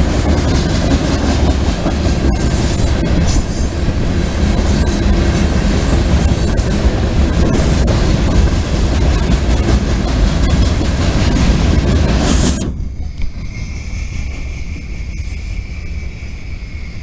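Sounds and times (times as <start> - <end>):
wheels clacking over rail joints: 0.0 - 12.6
train wheels rumbling on rails: 0.0 - 17.0
high wheel squeals: 12.4 - 17.0.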